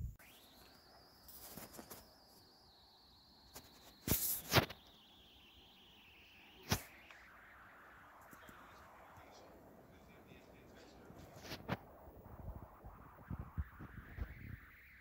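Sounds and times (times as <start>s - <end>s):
faint high whine: 0.0s - 15.0s.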